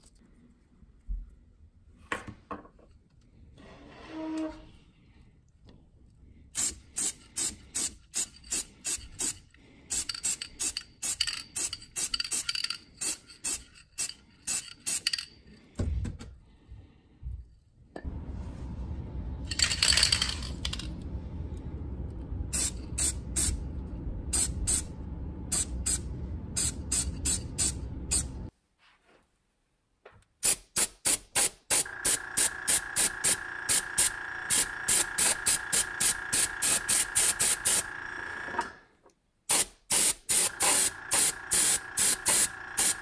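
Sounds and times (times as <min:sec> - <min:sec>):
spray paint can spraying: 0:06.6 - 0:15.2, 0:26.6 - 0:28.4, 0:30.4 - 0:37.9, 0:39.5 - 0:43.0
low steady rumble: 0:16.5 - 0:28.5.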